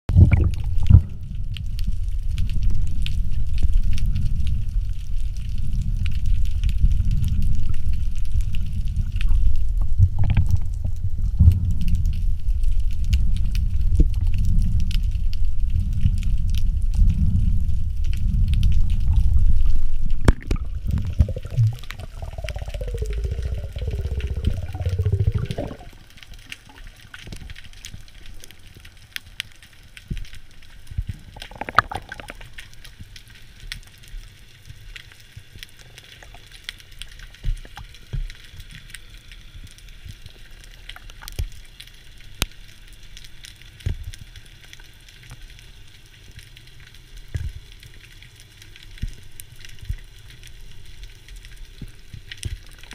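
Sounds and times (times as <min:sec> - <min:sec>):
gurgling bubbles: 0:00.1 - 0:04.5, 0:06.9 - 0:12.3, 0:15.8 - 0:27.8, 0:31.2 - 0:32.9
underwater rush of moving water: 0:00.1 - 0:42.3
sharp crackling clicks: 0:18.0 - 0:52.9
underwater hiss: 0:18.2 - 0:27.4.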